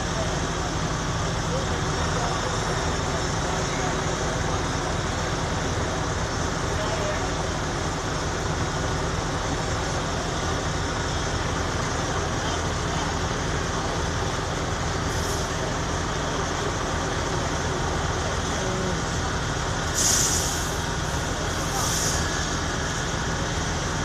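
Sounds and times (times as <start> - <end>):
diesel engines and pumps rumbling: 0.0 - 24.0
loud hiss: 18.9 - 24.0.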